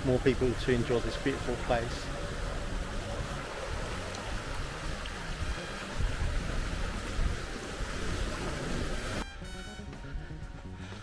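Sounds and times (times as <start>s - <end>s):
small waves splashing over rocks: 0.0s - 9.2s
wind buffeting microphone: 2.1s - 9.2s.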